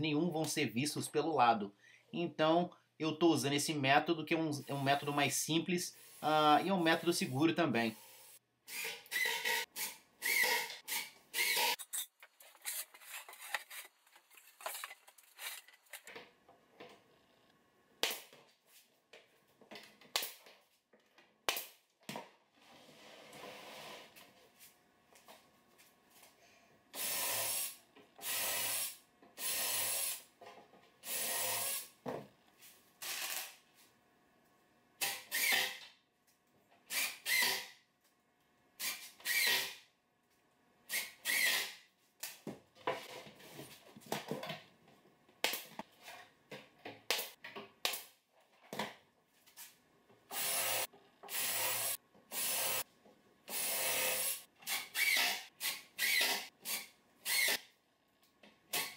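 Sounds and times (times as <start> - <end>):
cordless drill driving screws: 8.7 - 11.8, 31.1 - 31.9, 35.0 - 35.8, 36.9 - 37.7, 38.8 - 39.8, 40.9 - 41.7, 50.3 - 52.8, 53.5 - 57.6.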